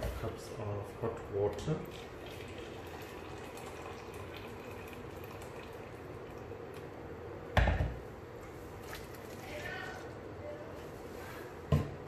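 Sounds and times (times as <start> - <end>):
hot water pouring into a bowl: 1.6 - 6.9.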